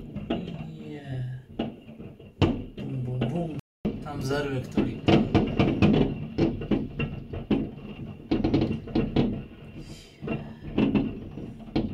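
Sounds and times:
fireworks banging and cracking: 0:00.0 - 0:11.9.

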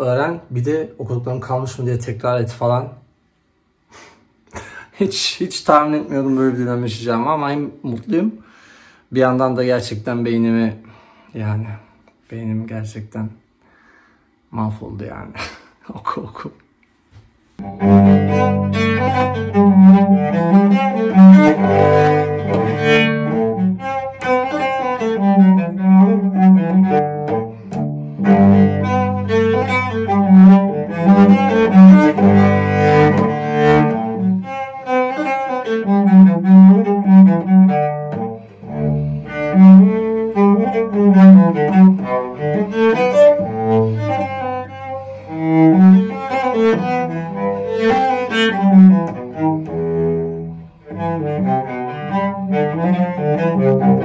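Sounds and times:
bowed cello melody: 0:17.6 - 0:54.0.

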